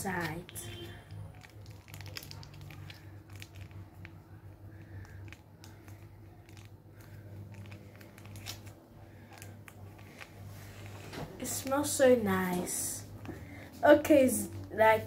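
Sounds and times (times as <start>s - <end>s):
plastic sachet crinkling: 0.0s - 13.6s
steady low hum: 0.0s - 15.0s.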